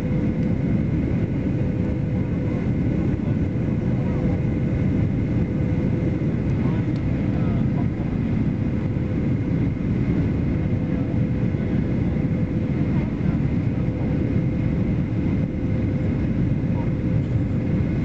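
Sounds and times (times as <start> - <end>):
jet engines rumbling: 0.0 - 18.0.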